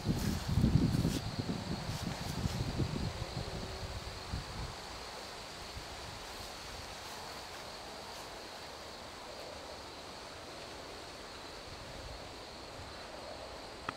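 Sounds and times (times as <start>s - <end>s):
wind rumble on microphone: 0.0s - 7.3s
steady hiss: 0.0s - 13.9s.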